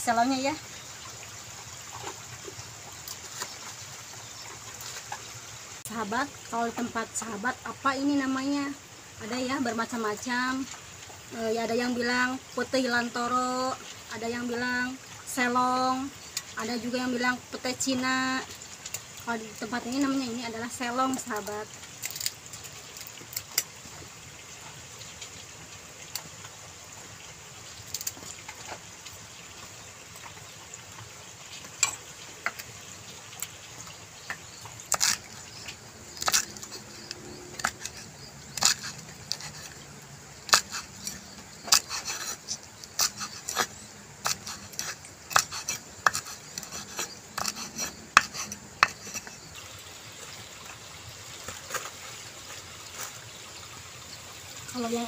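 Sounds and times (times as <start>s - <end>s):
knife cutting pods on wooden board: 40.5s - 49.4s.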